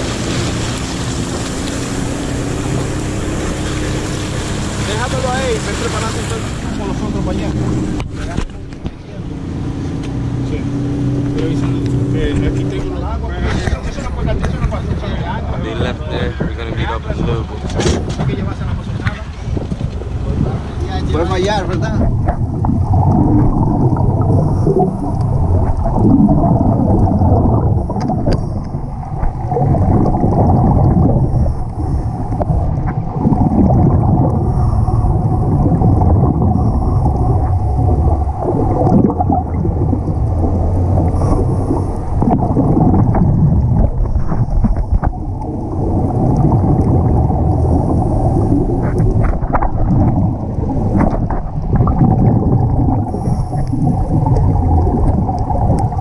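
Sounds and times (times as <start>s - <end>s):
muffled underwater rumble: 0.0s - 56.0s
exhaled bubbles: 19.4s - 56.0s
scuba regulator breaths: 53.1s - 54.0s.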